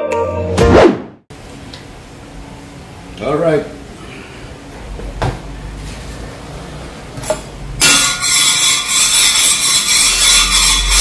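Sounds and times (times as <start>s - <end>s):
metal scraper on steel griddle: 7.8s - 11.0s.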